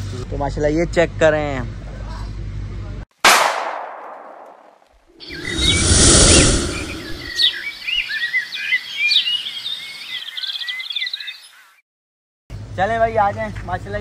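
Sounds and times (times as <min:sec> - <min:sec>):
loud rushing rumble: 0:05.2 - 0:07.7
small birds chirping: 0:05.2 - 0:11.8.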